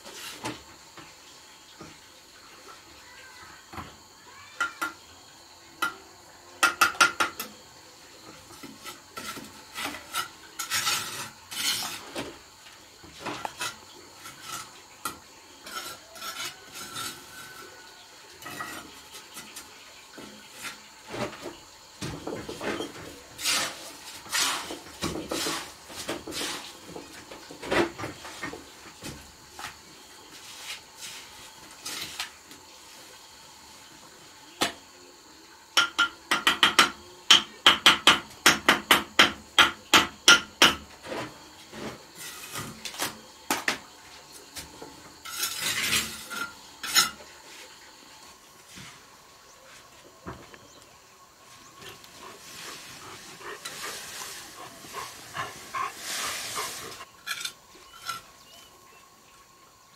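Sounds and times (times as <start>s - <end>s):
trowel scraping mortar: 8.5s - 12.2s, 13.3s - 17.7s, 22.8s - 26.8s, 41.1s - 43.2s, 45.2s - 47.2s, 51.8s - 58.6s.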